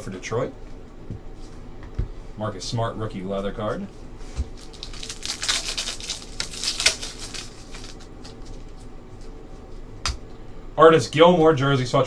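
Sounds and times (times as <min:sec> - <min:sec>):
foil wrapper crinkling: 0:04.4 - 0:08.9
cards rustling: 0:04.6 - 0:09.3.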